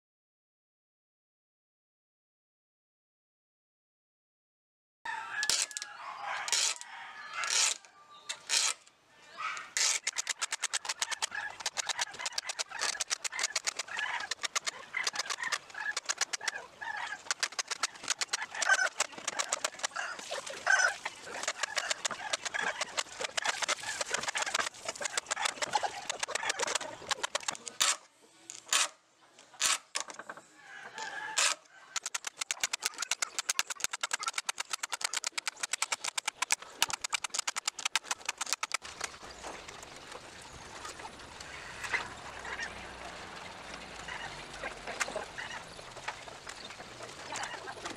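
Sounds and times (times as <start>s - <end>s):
hand tool rasping: 8.4s - 8.8s, 9.7s - 16.5s, 17.2s - 20.2s
hens clucking: 9.3s - 27.9s, 30.4s - 47.9s.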